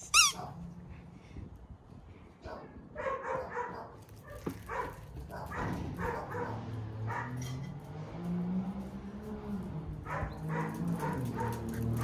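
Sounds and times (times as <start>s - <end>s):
dog barking: 0.2s - 0.6s, 2.4s - 7.4s, 10.1s - 12.0s.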